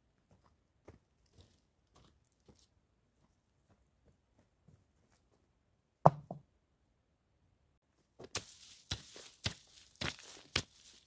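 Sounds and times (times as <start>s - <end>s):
hammer striking stony ground: 6.1s - 6.4s, 8.2s - 10.9s.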